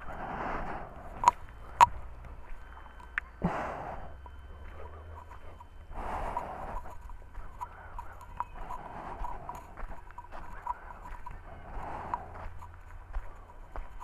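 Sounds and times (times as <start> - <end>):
person breathing hard: 0.0 - 2.4, 3.3 - 13.7
footsteps on rubble: 4.2 - 14.0.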